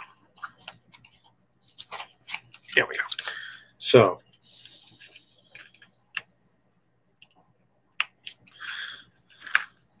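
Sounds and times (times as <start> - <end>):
sharp clicks and taps: 7.2 - 8.4.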